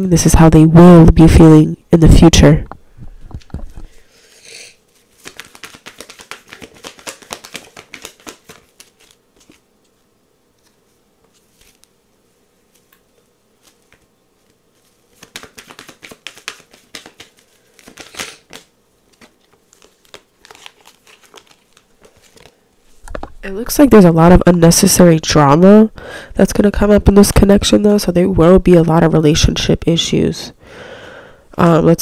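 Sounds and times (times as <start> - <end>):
cards flicking and rustling: 5.0 - 10.0, 10.6 - 12.0, 12.7 - 23.3.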